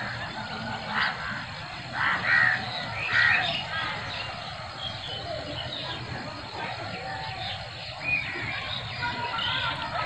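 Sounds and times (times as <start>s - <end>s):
crows cawing: 0.9s - 4.0s.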